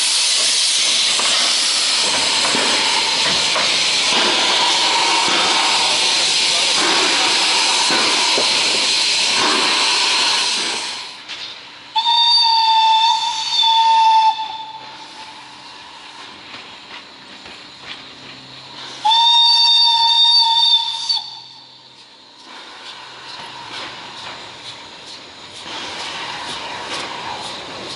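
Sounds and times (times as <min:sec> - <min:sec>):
steam hissing: 0:00.0 - 0:27.9
steam whistle blasts: 0:11.9 - 0:15.4, 0:19.0 - 0:21.7.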